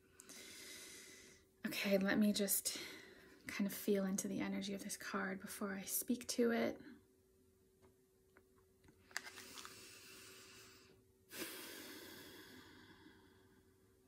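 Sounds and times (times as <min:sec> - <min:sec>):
person breathing deeply: 0:00.3 - 0:01.5, 0:09.3 - 0:13.8.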